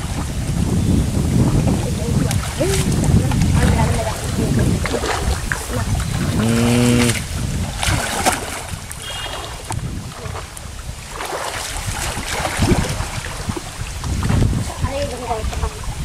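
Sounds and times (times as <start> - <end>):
muddy water sloshing and splashing: 0.0 - 16.0
wind buffeting microphone: 0.0 - 16.0.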